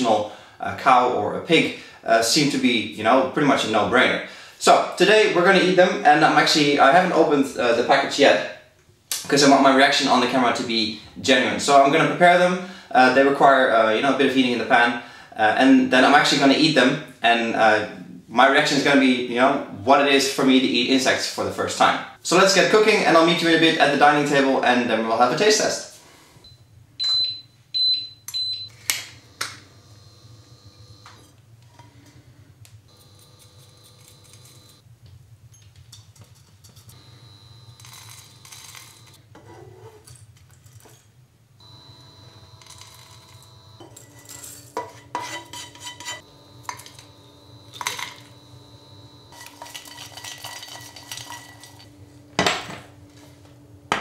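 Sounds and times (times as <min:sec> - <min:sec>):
hob control beeps: 0:26.4 - 0:28.8
faint hum: 0:40.9 - 0:54.0.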